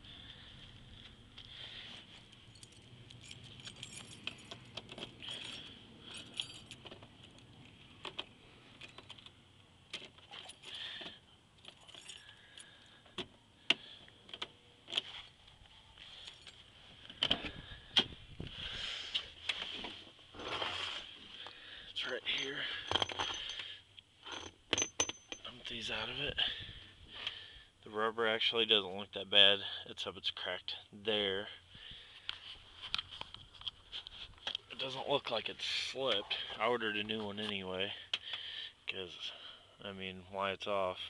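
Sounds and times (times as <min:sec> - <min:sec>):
light jingling: 0:02.2 - 0:06.9, 0:11.6 - 0:13.0, 0:22.0 - 0:26.2.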